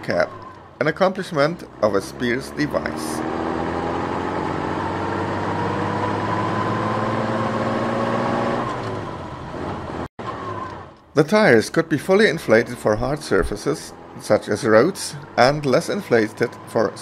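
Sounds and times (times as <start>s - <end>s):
heavy truck engine running: 8.6s - 17.0s.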